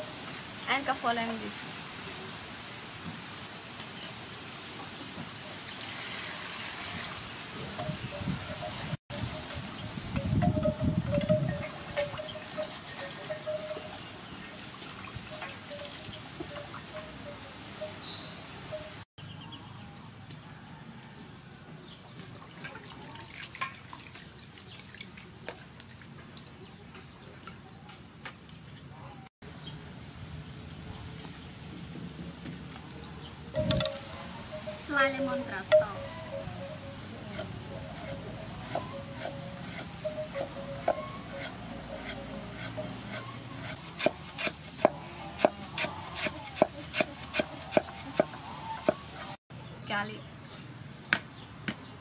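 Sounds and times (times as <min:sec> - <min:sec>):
water splashing in a steel bowl: 0:22.4 - 0:26.1.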